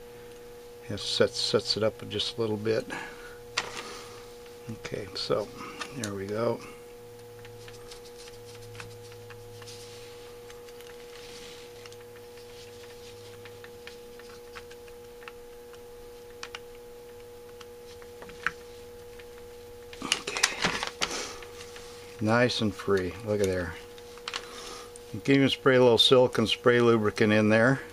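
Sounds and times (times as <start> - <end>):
steady electrical hum: 0.0 - 27.9.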